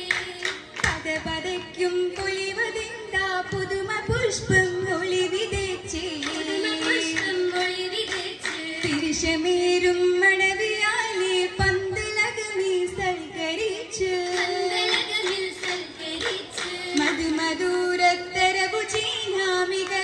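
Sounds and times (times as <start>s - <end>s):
voices singing in unison: 4.5s - 11.8s, 13.0s - 20.0s.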